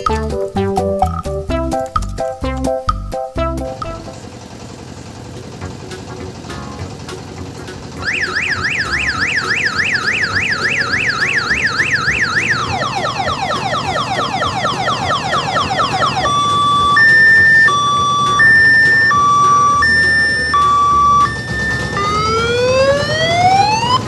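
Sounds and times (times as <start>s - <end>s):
electronic siren horn: 8.0s - 24.0s.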